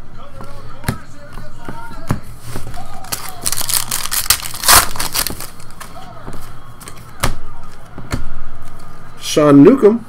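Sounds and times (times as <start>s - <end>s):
foil pack tearing and crinkling: 3.0s - 5.8s
cards clicking: 3.0s - 6.0s.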